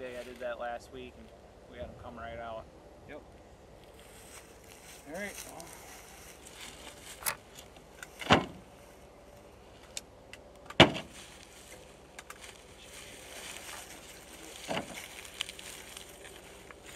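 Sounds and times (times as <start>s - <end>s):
thumps on truck bodywork: 8.2s - 8.6s, 10.8s - 11.1s.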